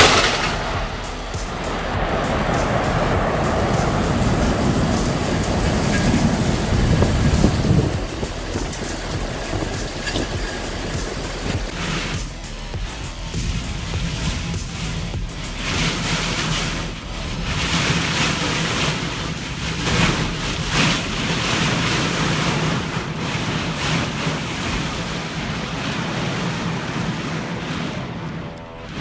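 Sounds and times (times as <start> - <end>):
heavy rain on pavement and cars: 0.0 - 12.2, 13.4 - 29.0
wind gusts buffeting microphone: 0.0 - 29.0.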